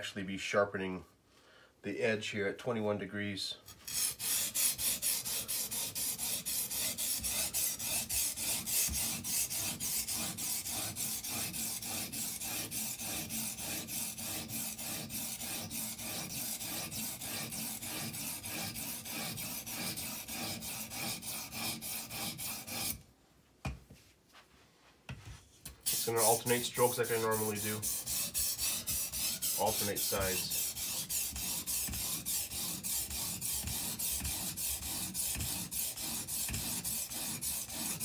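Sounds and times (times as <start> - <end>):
stone scraping knife edge: 25.7 - 38.0.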